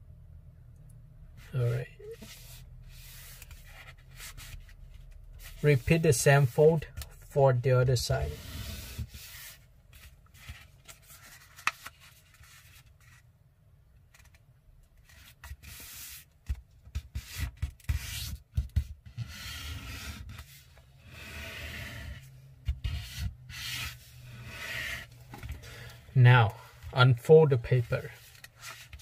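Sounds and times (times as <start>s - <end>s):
paper rustling while folded: 8.7s - 13.2s.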